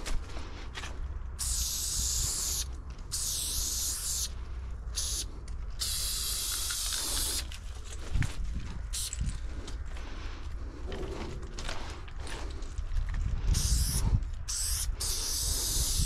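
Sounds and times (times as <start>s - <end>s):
spray-paint can hissing: 1.4s - 4.3s, 5.0s - 7.5s, 8.9s - 9.2s, 13.6s - 16.0s.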